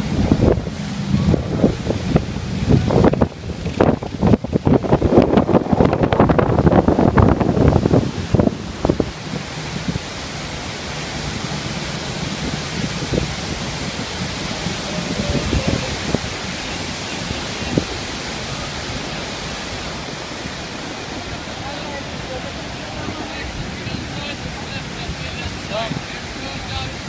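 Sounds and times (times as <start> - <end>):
waterfall rushing: 0.0 - 27.0
wind buffeting microphone: 0.0 - 27.0.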